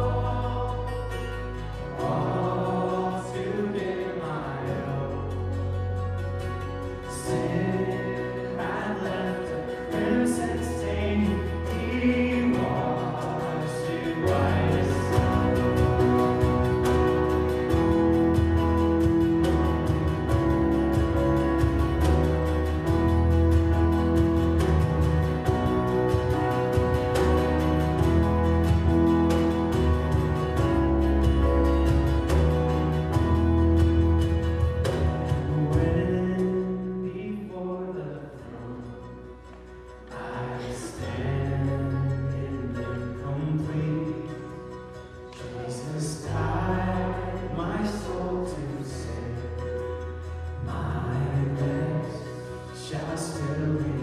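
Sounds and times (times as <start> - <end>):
voices singing a hymn: 0.0 - 5.4, 7.1 - 18.1, 40.1 - 42.3, 45.4 - 49.4
acoustic guitars: 0.0 - 54.0
deep bass notes: 0.0 - 54.0
keyboard: 0.0 - 54.0
mandolin: 0.0 - 54.0.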